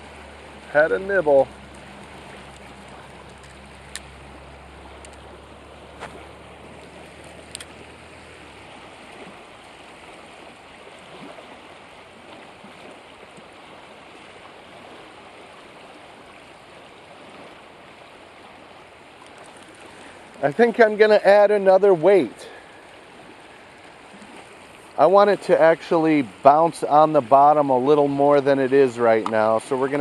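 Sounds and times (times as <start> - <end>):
river rushing over a riffle: 0.0 - 30.0.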